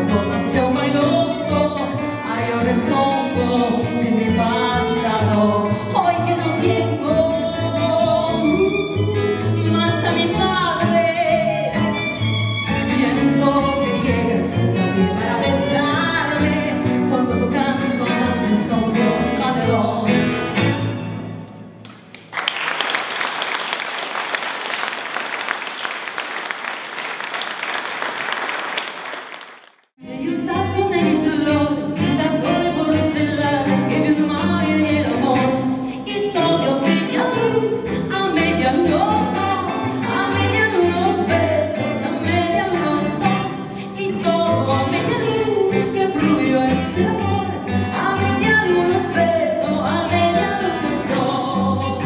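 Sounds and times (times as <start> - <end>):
woman singing: 0.0 - 11.8, 12.7 - 20.5, 30.0 - 52.0
tango ensemble playing: 0.0 - 21.4, 30.0 - 52.0
audience applauding: 21.9 - 29.9.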